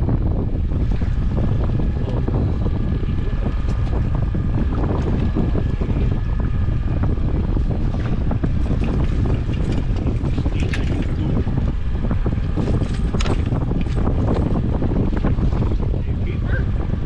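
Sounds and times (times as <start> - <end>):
wind buffeting microphone: 0.0 - 17.0
clicks and knocks of fishing gear: 8.8 - 11.2, 12.6 - 14.0.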